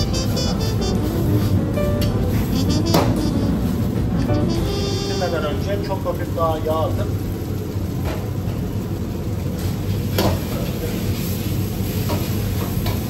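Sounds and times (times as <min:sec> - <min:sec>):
low rumble: 0:00.0 - 0:05.3
food sizzling in a wok: 0:00.0 - 0:13.0.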